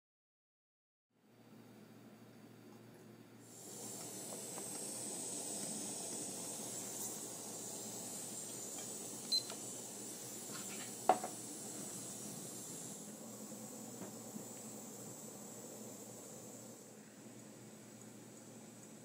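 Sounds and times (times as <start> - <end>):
gas burner hissing: 3.4 - 19.0.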